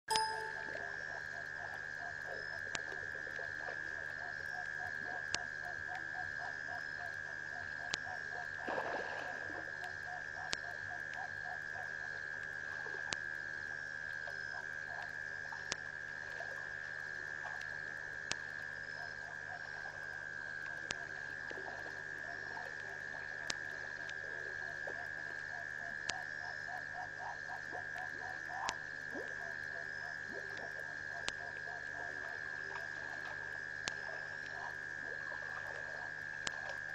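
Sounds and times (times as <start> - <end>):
high-pitched hum: 0.1 - 1.0
frogs croaking: 0.2 - 8.7, 9.6 - 36.9.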